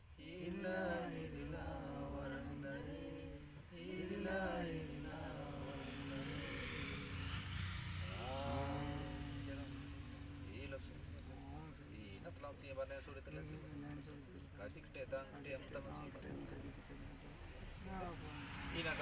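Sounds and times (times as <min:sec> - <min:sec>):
person chanting a prayer: 0:00.1 - 0:07.4, 0:08.0 - 0:12.1.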